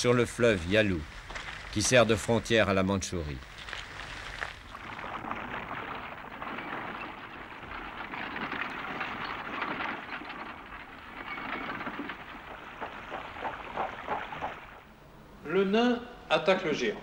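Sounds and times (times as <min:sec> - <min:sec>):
water splashing and sloshing: 0:03.5 - 0:15.0.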